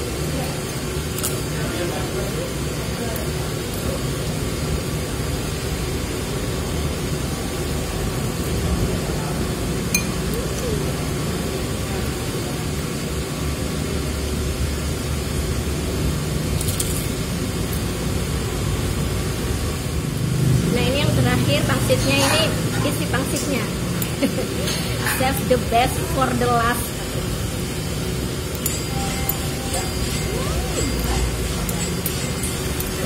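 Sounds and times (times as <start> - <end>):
steady background rumble: 11.0 - 24.6.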